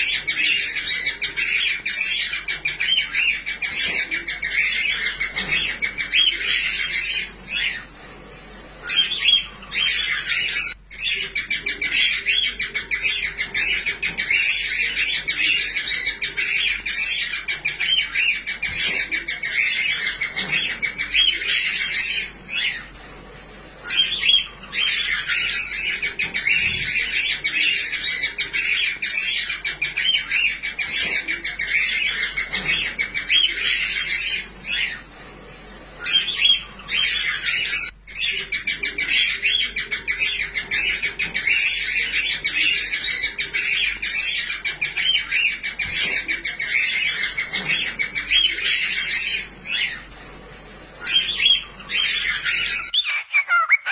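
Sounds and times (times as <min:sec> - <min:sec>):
chick chirping cheeps: 0:52.8 - 0:53.9.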